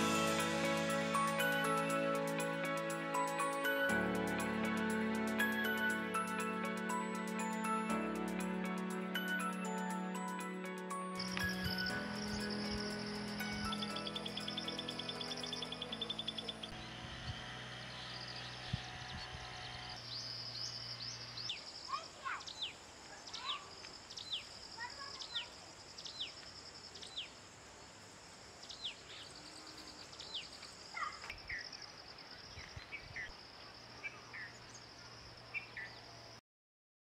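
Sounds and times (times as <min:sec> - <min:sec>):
insects trilling: 0:11.2 - 0:16.8
bird chirps: 0:11.2 - 0:17.0.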